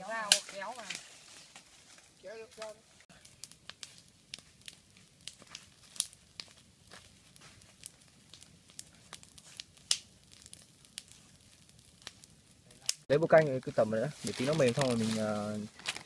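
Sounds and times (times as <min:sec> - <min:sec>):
campfire crackling and popping: 0:00.0 - 0:16.0.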